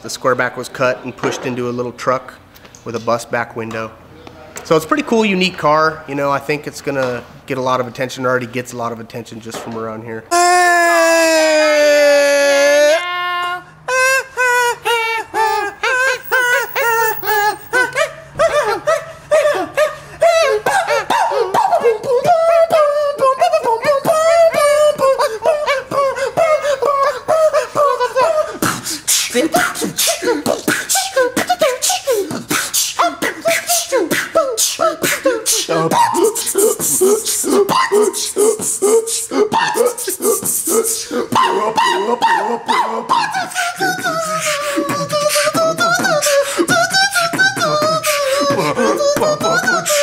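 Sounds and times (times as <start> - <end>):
man beatboxing: 20.6 - 50.0
man singing wavering vocal line: 21.4 - 50.0.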